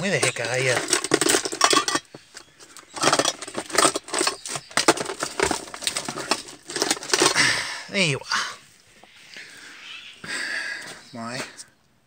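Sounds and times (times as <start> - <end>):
packaging and objects rustling: 0.0 - 7.4.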